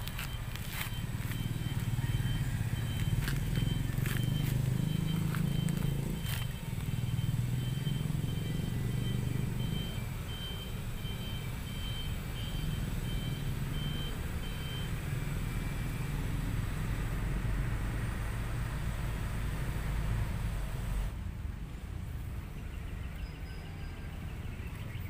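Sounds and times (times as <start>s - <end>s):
low engine rumble: 0.0s - 25.0s
reversing beeper short high beeps: 0.2s - 15.0s.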